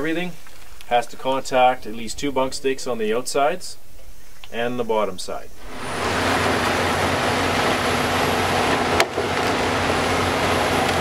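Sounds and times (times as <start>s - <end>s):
diesel engine and hydraulics: 5.6s - 11.0s.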